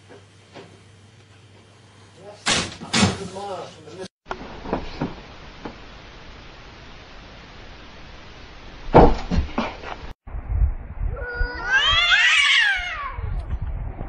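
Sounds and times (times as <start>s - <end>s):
cat yowling: 11.1s - 13.4s.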